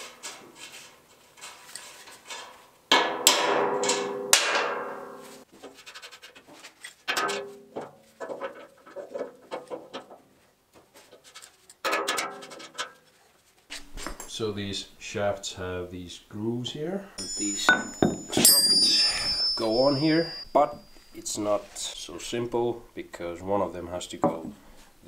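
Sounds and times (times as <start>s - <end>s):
sharp ringing knocks: 17.2s - 21.4s
metal clinks and knocks: 17.2s - 22.0s.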